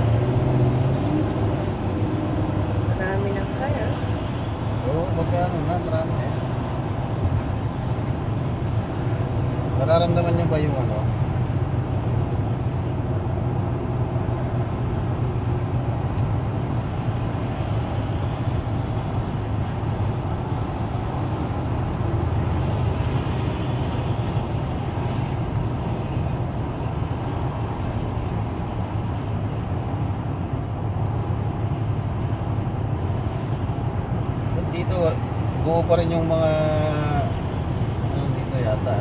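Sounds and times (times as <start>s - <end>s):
car cabin road and engine noise: 0.0s - 39.0s.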